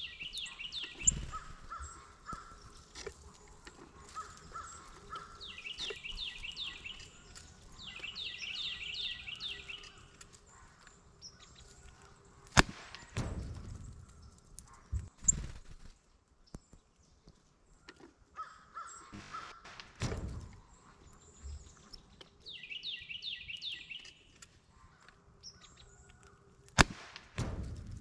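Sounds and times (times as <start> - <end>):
bird chirping descending notes: 0.0 - 2.0, 5.2 - 10.0, 22.5 - 24.3
air rifle shot: 12.6 - 13.9, 19.2 - 20.6, 26.8 - 28.0.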